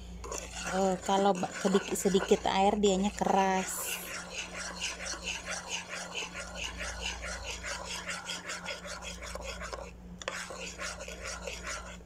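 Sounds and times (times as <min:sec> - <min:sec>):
metal spoon scraping a frying pan: 0:00.3 - 0:02.5, 0:03.1 - 0:12.0.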